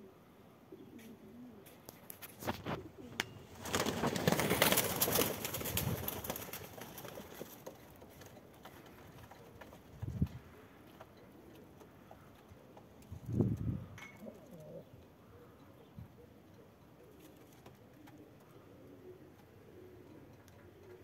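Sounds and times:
pigeons cooing: 0.0 - 1.9, 10.5 - 21.0
wings flapping: 2.0 - 10.2.

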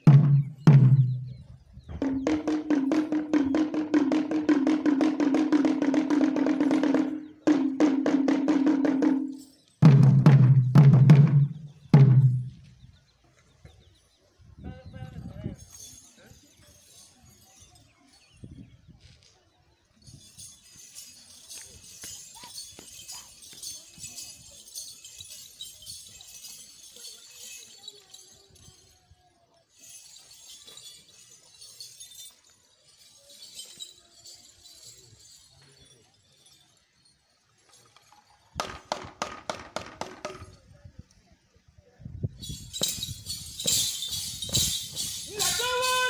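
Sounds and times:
drums playing loudly: 0.0 - 12.6, 42.7 - 46.0
metallic costume jingling: 0.0 - 13.0, 13.8 - 40.7, 42.2 - 46.0.

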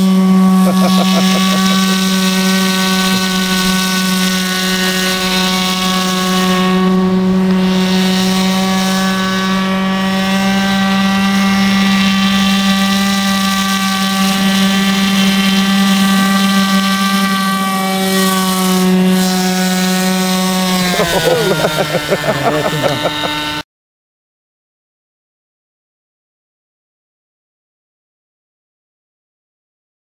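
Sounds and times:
model boat engine buzzing: 0.0 - 23.6.

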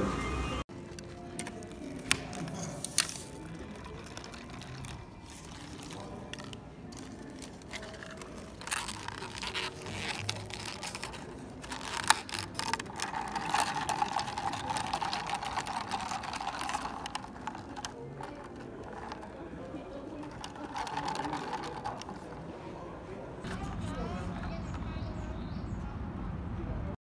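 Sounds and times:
straw scraping: 0.8 - 22.6
ice cubes clinking in plastic cup: 1.5 - 22.4.

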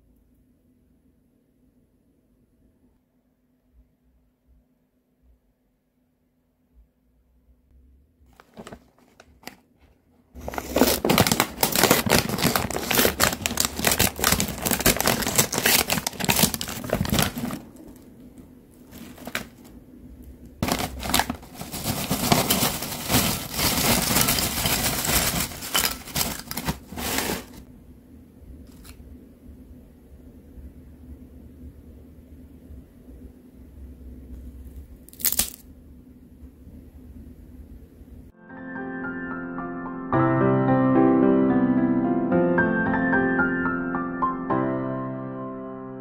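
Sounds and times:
foil bag crinkling: 8.3 - 9.6, 10.4 - 18.1, 18.8 - 19.8, 20.6 - 27.6, 35.1 - 35.6
chips rustling and rattling: 10.4 - 18.0, 18.9 - 19.8, 20.6 - 27.6, 35.1 - 35.6.

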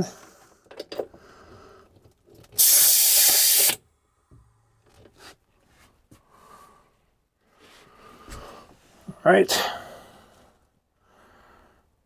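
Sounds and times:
compressed air hissing: 2.6 - 3.8.

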